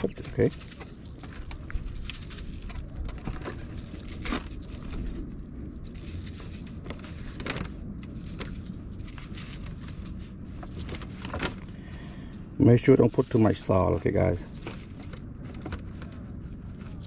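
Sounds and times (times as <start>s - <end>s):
plastic container crackling: 0.0s - 11.8s
steady low rumble: 0.0s - 17.0s.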